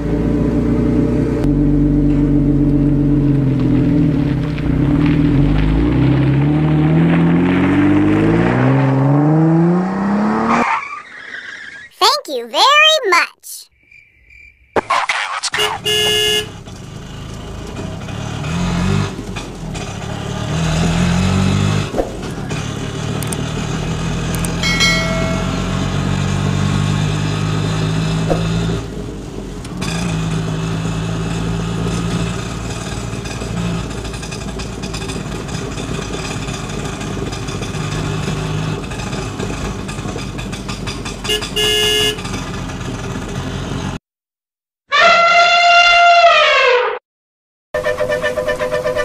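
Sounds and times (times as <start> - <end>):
horn honk: 15.6 - 16.6, 41.3 - 42.3, 44.9 - 46.9, 47.8 - 49.0
small engine revving: 16.9 - 28.9.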